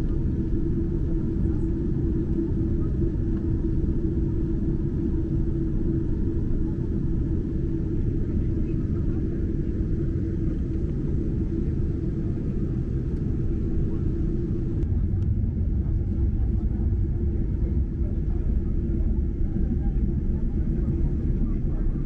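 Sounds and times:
jet engines rumbling: 0.0s - 22.0s
steady cabin hum: 8.3s - 22.0s.

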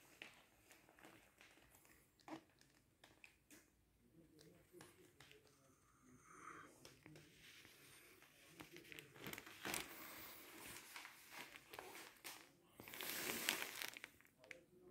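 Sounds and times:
rustling and crinkling handling: 0.0s - 3.7s, 6.8s - 14.9s.

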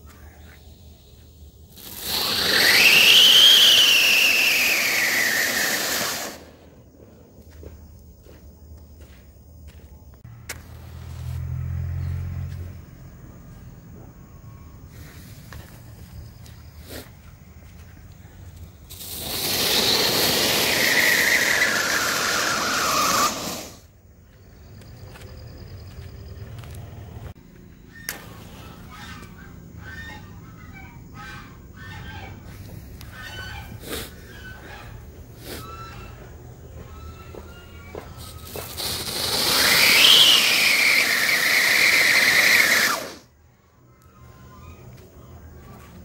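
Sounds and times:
hiss of spark fountain: 1.7s - 6.7s, 18.9s - 23.9s, 38.2s - 43.2s
firework siren whistle: 1.8s - 6.5s, 18.9s - 23.9s, 36.8s - 43.3s.

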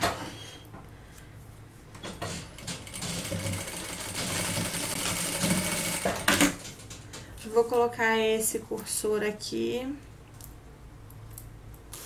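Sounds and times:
industrial sewing machine running: 2.0s - 6.7s.

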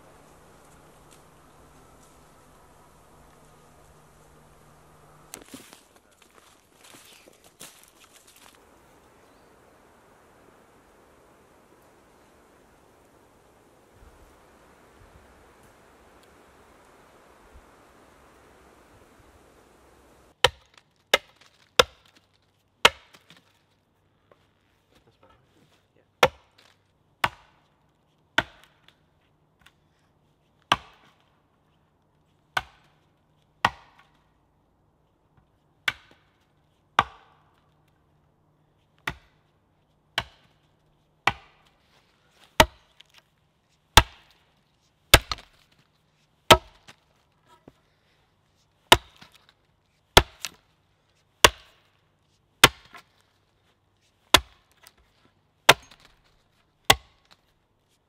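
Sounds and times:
axe chopping wood: 0.1s - 5.8s, 20.4s - 22.1s, 22.8s - 23.4s, 26.2s - 26.6s, 27.2s - 27.6s, 28.4s - 28.9s, 30.7s - 31.2s, 32.6s - 33.0s, 33.6s - 34.2s, 35.8s - 36.4s, 37.0s - 37.5s, 39.0s - 39.4s, 40.1s - 40.6s, 41.2s - 41.8s, 42.4s - 43.2s, 44.0s - 44.4s, 45.1s - 45.7s, 46.5s - 47.0s, 48.9s - 49.5s, 50.2s - 50.6s, 51.4s - 51.9s, 52.6s - 53.1s, 54.3s - 54.9s, 55.7s - 56.3s, 56.9s - 57.4s.

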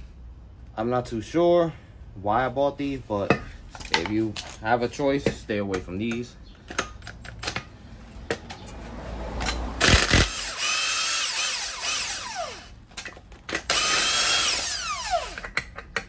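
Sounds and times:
power tool whirring and winding down: 9.5s - 12.8s, 13.5s - 15.5s.

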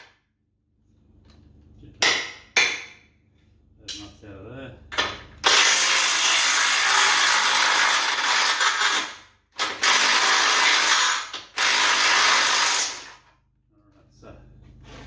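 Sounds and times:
impact wrench hammering: 2.0s - 3.1s, 4.9s - 13.3s.

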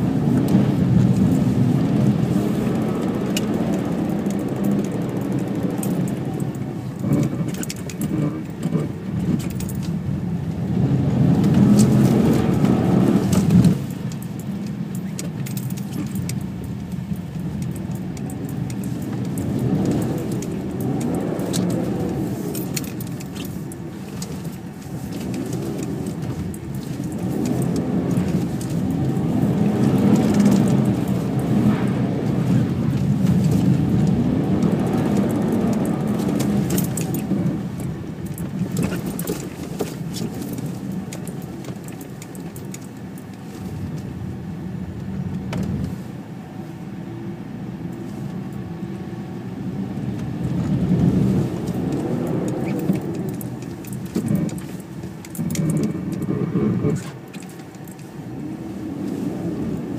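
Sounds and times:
car engine revving: 0.0s - 14.4s, 15.6s - 42.6s, 49.6s - 59.9s
clicks and rattles: 2.8s - 10.0s, 51.5s - 58.2s.

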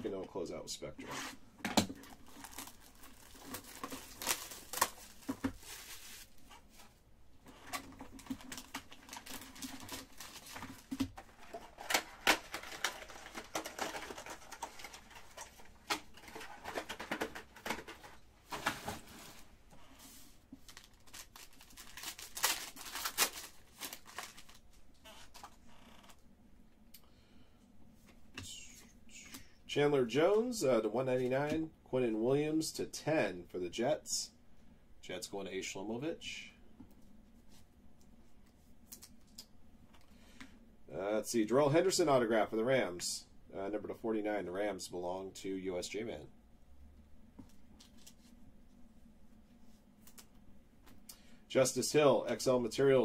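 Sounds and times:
foil card packs crinkling: 1.8s - 6.9s, 7.6s - 25.6s
foil wrapper tearing: 2.1s - 6.2s, 20.7s - 24.6s.

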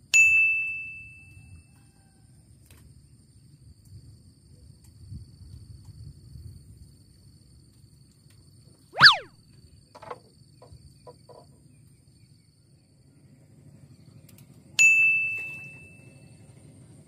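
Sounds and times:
loud rising whistle: 9.0s - 9.3s.

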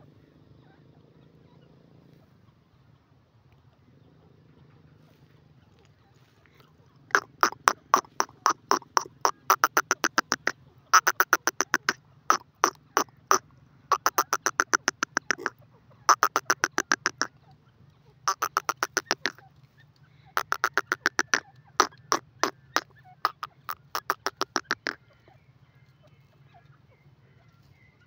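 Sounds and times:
francolin calling rapid notes: 7.1s - 15.5s, 16.1s - 17.3s, 18.3s - 19.4s, 20.4s - 25.0s.

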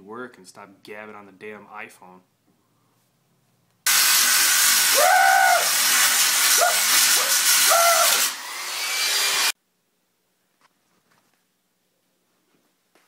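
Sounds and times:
angle grinder grinding metal: 3.9s - 9.6s.

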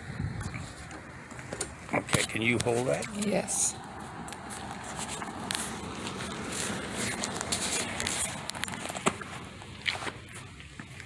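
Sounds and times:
footsteps: 3.8s - 11.0s.

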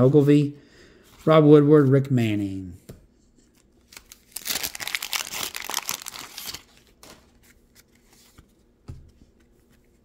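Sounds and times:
wax paper wrapper tearing: 3.9s - 6.8s.

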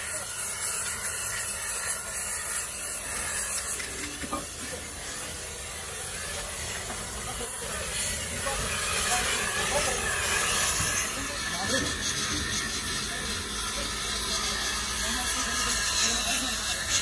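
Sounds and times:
gas torch flame hissing: 0.0s - 17.0s.

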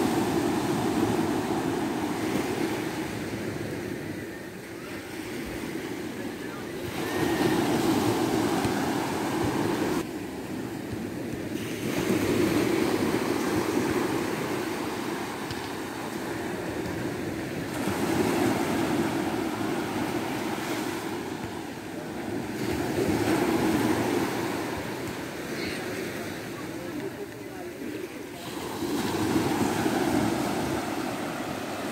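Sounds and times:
sea waves breaking on a beach: 0.0s - 31.9s.

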